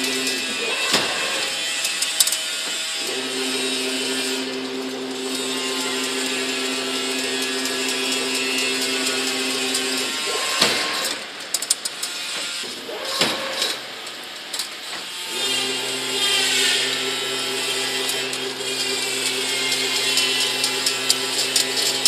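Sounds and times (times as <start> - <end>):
machine motor hum: 0.0 - 11.6, 15.2 - 22.0
metallic clicking and clatter: 0.2 - 3.2, 5.2 - 15.1.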